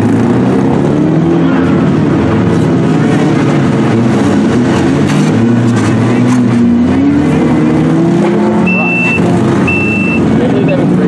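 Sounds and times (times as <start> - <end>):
car engines revving: 0.0 - 11.0.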